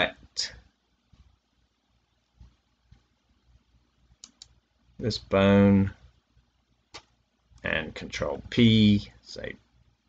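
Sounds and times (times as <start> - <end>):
faint low thuds: 2.3 - 3.1.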